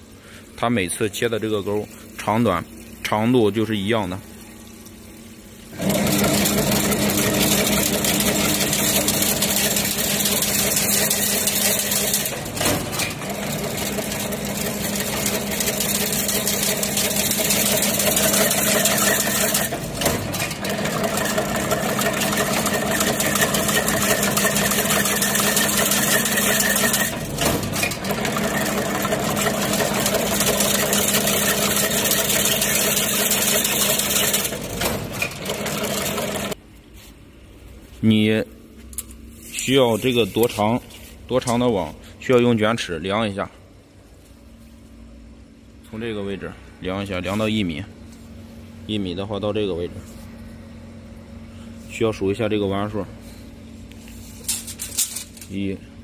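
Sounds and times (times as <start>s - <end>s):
fence machine mechanical hum: 0.0s - 56.0s.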